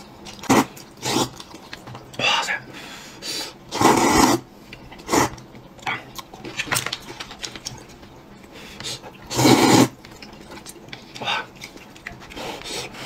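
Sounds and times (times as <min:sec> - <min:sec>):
wet chewing and mouth clicks: 0:00.0 - 0:02.2, 0:04.7 - 0:13.0
noodle slurping: 0:00.3 - 0:01.5, 0:03.7 - 0:05.4, 0:08.8 - 0:13.0.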